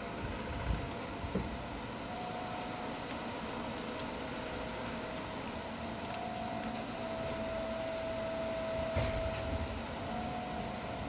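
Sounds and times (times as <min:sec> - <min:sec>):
train electrical hum and whine: 0:00.0 - 0:11.0
thump: 0:08.9 - 0:09.4.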